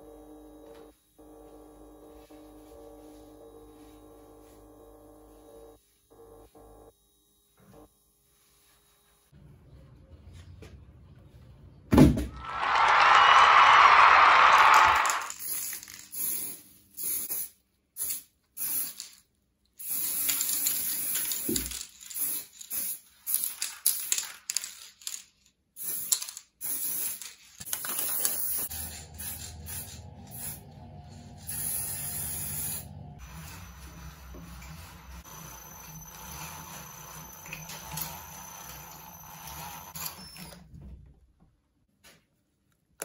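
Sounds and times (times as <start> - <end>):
spray paint can hissing: 14.7 - 19.2, 19.8 - 24.4, 25.8 - 30.7, 31.4 - 38.1.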